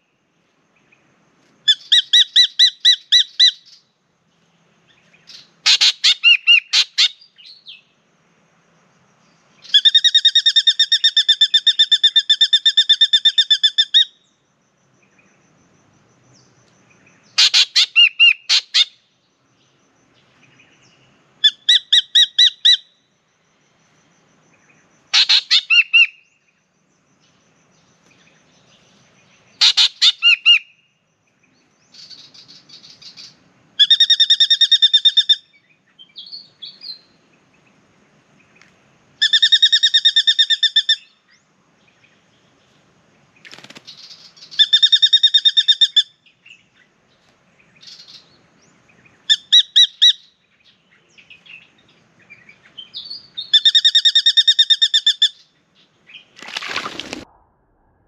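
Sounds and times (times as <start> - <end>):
bird calling with harsh notes: 1.6 - 4.0, 4.9 - 8.0, 9.6 - 14.4, 16.4 - 19.1, 20.2 - 23.5, 24.5 - 26.6, 27.2 - 37.2, 39.2 - 41.4, 43.5 - 46.9, 47.7 - 48.4, 49.0 - 57.4.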